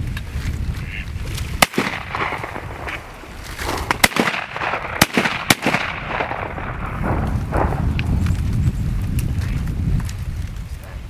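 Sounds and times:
shotgun shots: 1.6 - 7.8.

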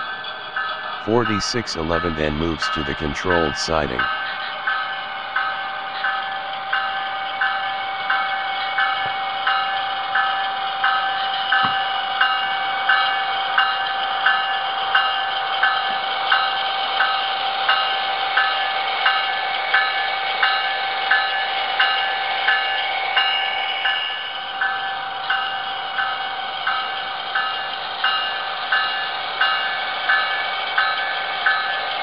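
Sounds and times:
model locomotive bell ringing: 0.0 - 1.0, 4.0 - 32.0.

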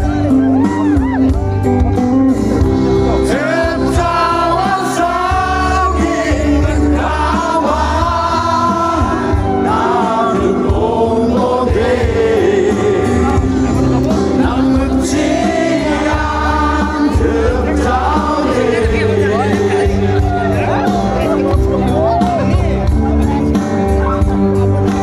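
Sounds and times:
live band through outdoor pa: 0.0 - 25.0
person singing: 3.2 - 21.4.

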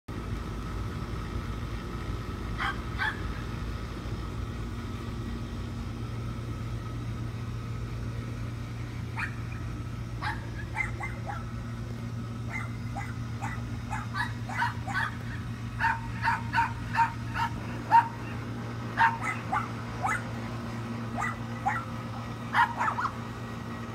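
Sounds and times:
steady low hum: 0.1 - 23.9
dog yipping: 2.6 - 3.2, 9.2 - 9.5, 10.2 - 11.5, 12.5 - 18.3, 19.0 - 20.3, 21.2 - 21.9, 22.5 - 23.2.

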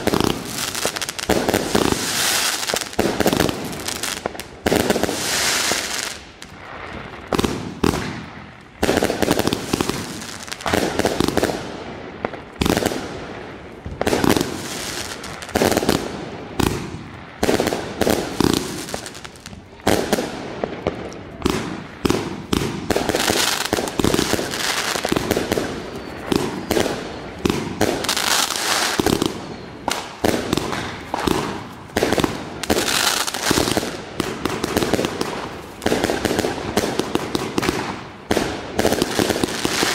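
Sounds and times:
crackling firework stars: 0.0 - 39.9.

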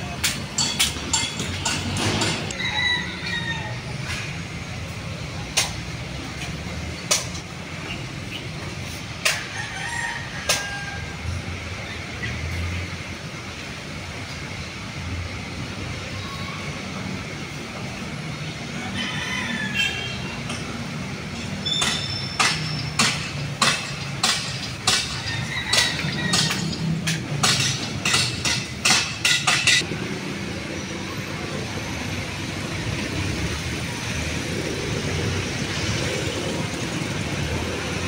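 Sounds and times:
traffic hum: 0.0 - 38.0
metal clanking: 0.2 - 2.5, 21.4 - 29.8.

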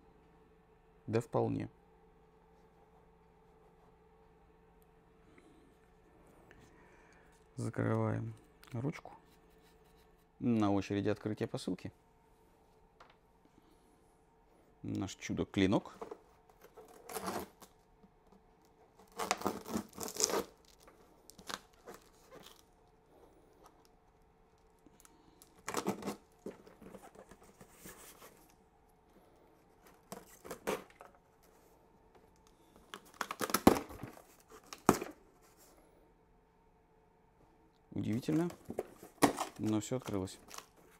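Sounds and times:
tape tearing: 16.0 - 17.8, 18.9 - 22.8, 25.4 - 28.6, 32.9 - 35.2, 38.3 - 40.9
cardboard rustling: 25.6 - 28.6, 38.0 - 40.9.

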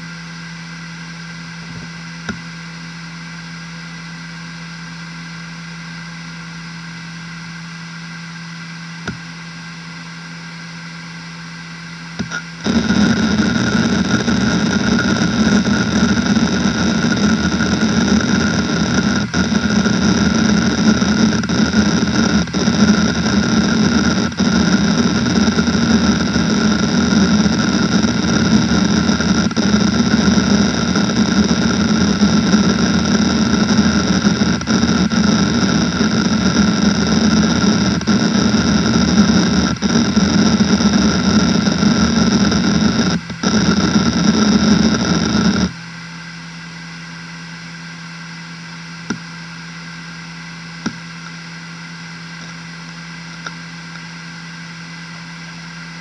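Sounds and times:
hard drive whining: 0.0 - 56.0
hard drive seek chatter: 12.0 - 45.8.

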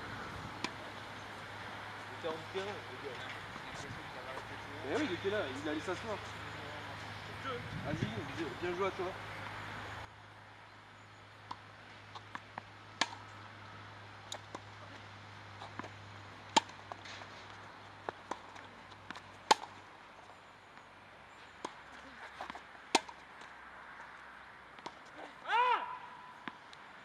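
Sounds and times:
tennis ball bouncing: 0.1 - 1.2, 11.4 - 13.5, 15.6 - 19.8, 21.5 - 24.1, 24.7 - 25.2, 26.4 - 26.8
racquets striking tennis ball: 0.1 - 6.2, 11.4 - 19.9, 20.8 - 25.2, 26.4 - 26.9.

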